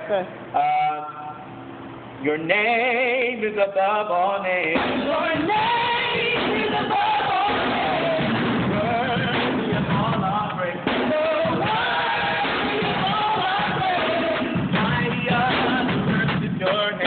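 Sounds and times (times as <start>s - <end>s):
group singing worship song: 4.7s - 17.0s.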